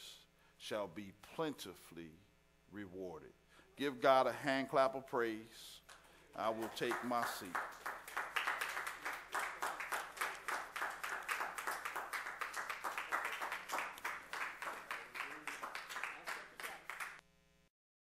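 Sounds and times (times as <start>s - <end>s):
crowd applauding: 6.4s - 17.2s.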